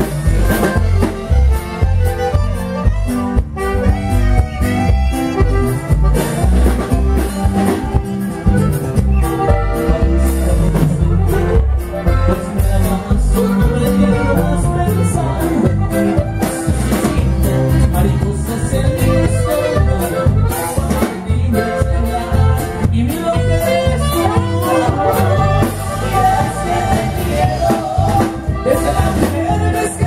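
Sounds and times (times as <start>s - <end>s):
saxophone: 0.0s - 12.8s, 21.5s - 29.6s
bass notes: 0.0s - 30.0s
button accordion: 0.0s - 30.0s
steady drum beat: 0.0s - 30.0s.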